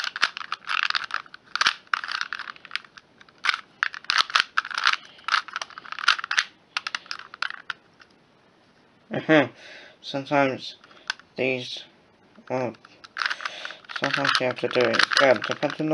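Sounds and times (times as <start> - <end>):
puzzle cube clicking: 0.0 - 7.8, 12.7 - 15.9.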